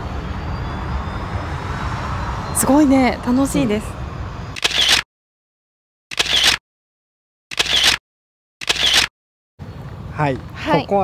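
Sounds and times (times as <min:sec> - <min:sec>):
short noise bursts: 0:04.6 - 0:05.0, 0:06.1 - 0:06.6, 0:07.5 - 0:08.0, 0:08.6 - 0:09.1.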